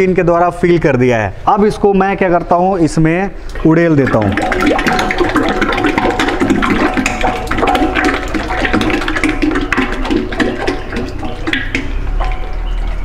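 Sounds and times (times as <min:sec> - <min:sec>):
oil pouring gurgling and splashing: 0:03.5 - 0:13.0.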